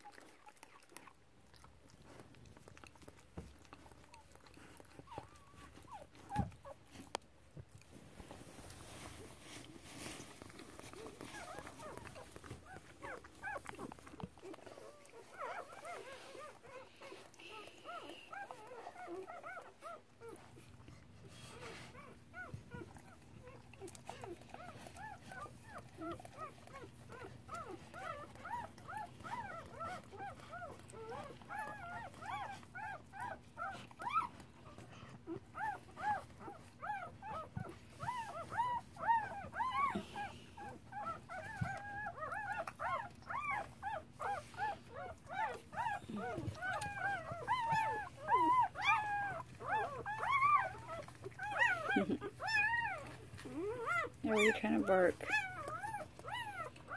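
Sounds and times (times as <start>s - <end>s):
puppy squeaking cries: 45.3s - 56.7s.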